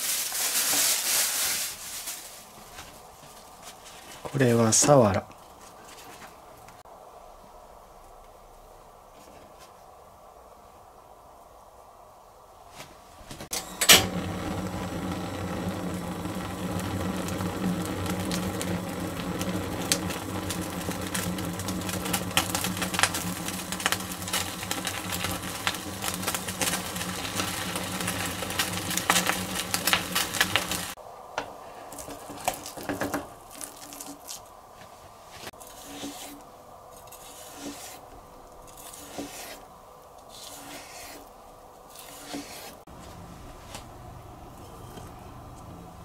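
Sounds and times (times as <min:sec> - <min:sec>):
fish skin crackling over flame: 0:00.0 - 0:02.8, 0:14.0 - 0:31.0, 0:31.9 - 0:34.6
gas burner flame: 0:13.2 - 0:34.5.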